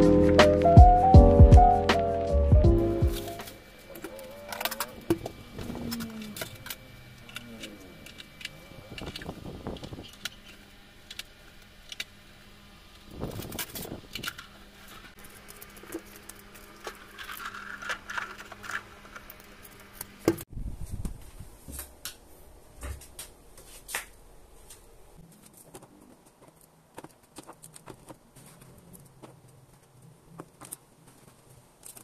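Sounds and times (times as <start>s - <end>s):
fridge hum: 0.0s - 27.2s
eggshells and plastic clicking: 13.3s - 20.4s.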